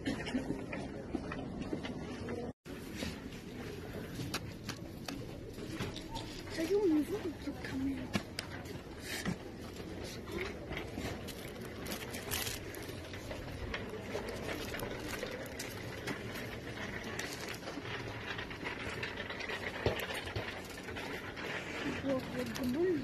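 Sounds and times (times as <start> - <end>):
clicks and rustles of goods: 0.0 - 23.0.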